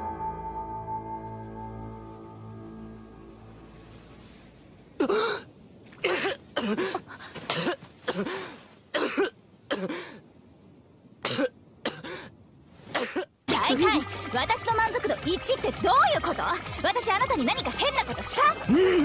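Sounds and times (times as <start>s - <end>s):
man coughing: 9.0s - 10.2s, 11.2s - 12.2s.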